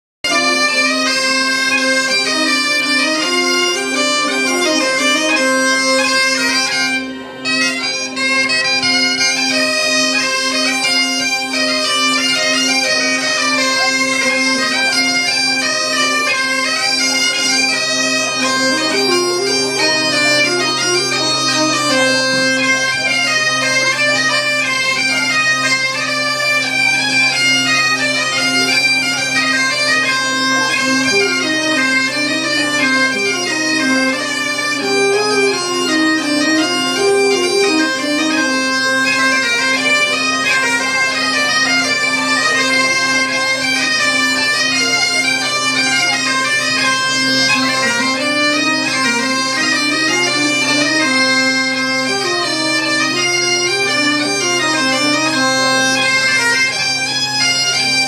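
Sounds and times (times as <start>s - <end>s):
saxophone: 0.2s - 57.9s
bagpipes playing dance tune: 0.2s - 58.0s
small wind instrument: 0.2s - 58.0s.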